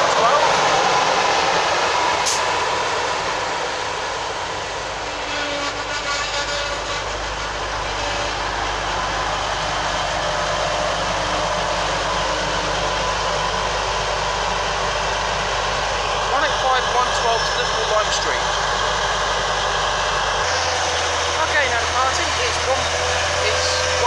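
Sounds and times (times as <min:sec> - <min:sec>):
diesel train engine drone: 0:00.0 - 0:24.0
train wheels rolling on rails: 0:00.0 - 0:24.0
high squeal: 0:03.8 - 0:14.1, 0:14.9 - 0:24.0.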